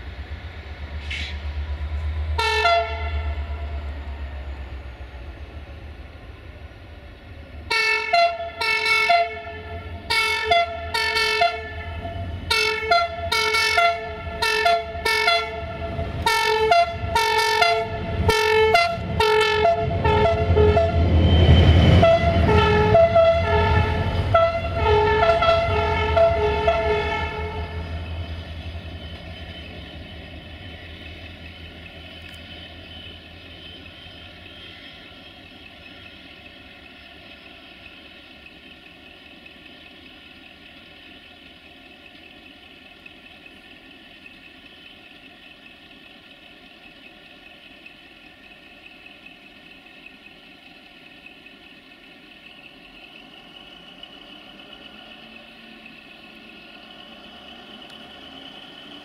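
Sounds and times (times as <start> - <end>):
diesel locomotive engine running: 0.0 - 59.0.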